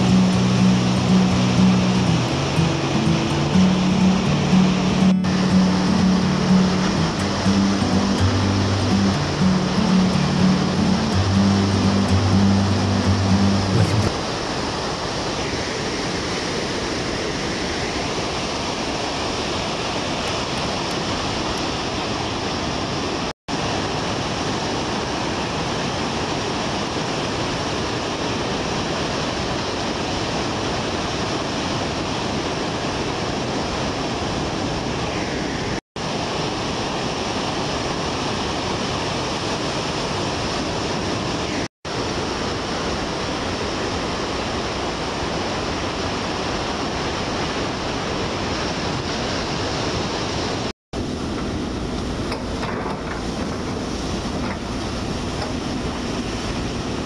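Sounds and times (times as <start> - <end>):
ocean surf breaking: 0.0 - 57.0.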